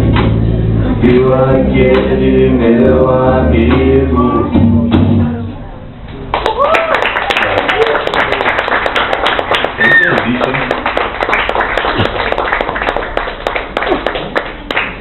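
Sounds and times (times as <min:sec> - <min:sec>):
audience clapping: 0:06.3 - 0:15.0
person cheering: 0:06.4 - 0:08.1, 0:09.8 - 0:10.4.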